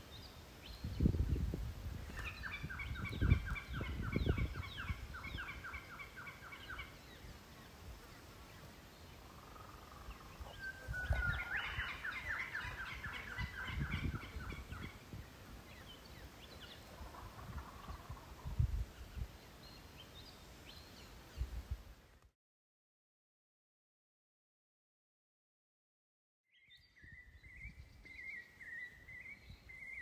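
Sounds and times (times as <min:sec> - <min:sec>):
wind rumble on microphone: 0:00.6 - 0:06.0, 0:10.0 - 0:19.8, 0:21.3 - 0:22.0, 0:26.8 - 0:28.4.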